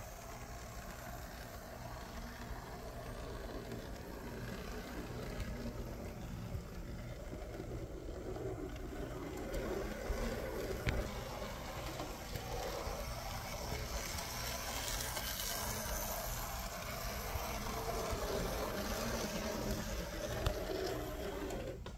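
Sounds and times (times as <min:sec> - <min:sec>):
model train motor whirring: 0:00.0 - 0:21.9.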